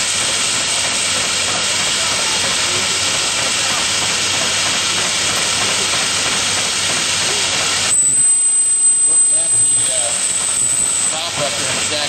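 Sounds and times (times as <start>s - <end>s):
steam engine venting steam hiss: 0.0s - 12.0s.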